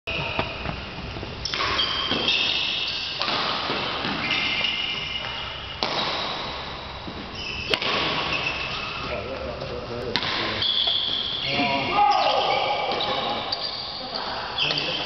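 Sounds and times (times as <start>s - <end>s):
shoes squeaking: 0.1s - 5.9s, 7.0s - 15.0s
badminton shuttlecock knocks: 5.8s - 6.4s, 7.7s - 8.2s.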